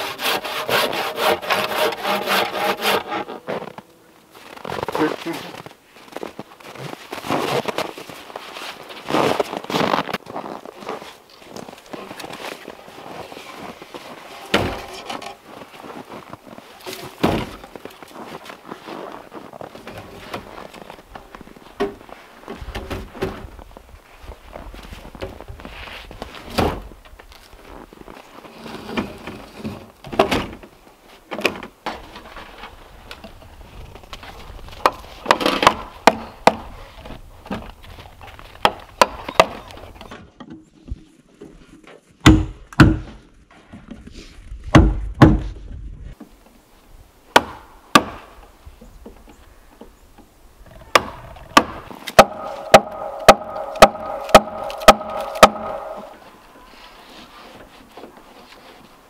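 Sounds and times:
mallet striking chisel into wood: 51.0s - 56.2s.

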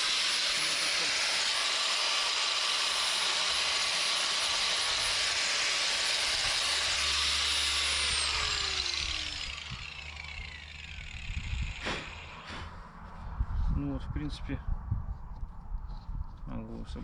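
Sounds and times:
angle grinder whining: 0.0s - 12.6s.

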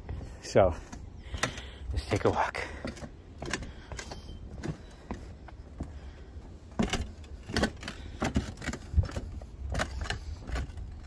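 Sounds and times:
boots walking on tile roof: 0.0s - 11.0s.

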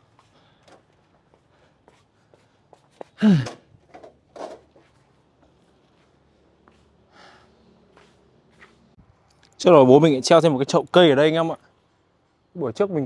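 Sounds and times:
breathy sound: 3.2s - 3.6s
faint footsteps: 4.7s - 7.1s, 7.8s - 9.0s.

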